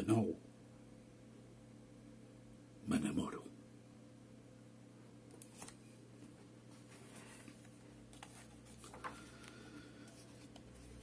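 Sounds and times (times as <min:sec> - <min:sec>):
faint steady hum: 0:00.0 - 0:11.0
soft clicks and rustles: 0:05.3 - 0:11.0.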